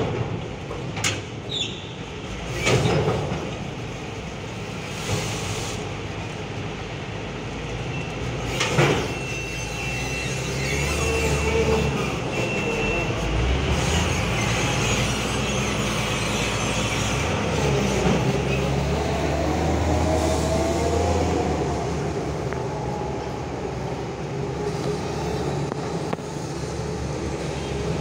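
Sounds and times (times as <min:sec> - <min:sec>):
diesel engine pulling away: 0:10.3 - 0:28.0.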